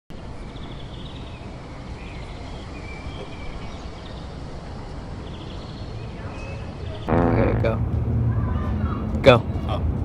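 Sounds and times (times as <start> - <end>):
steady low rumble: 7.1 - 8.6.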